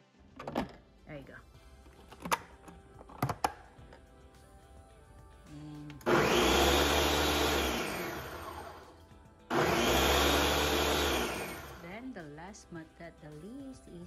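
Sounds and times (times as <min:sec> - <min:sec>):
blender motor running: 0:06.0 - 0:12.0.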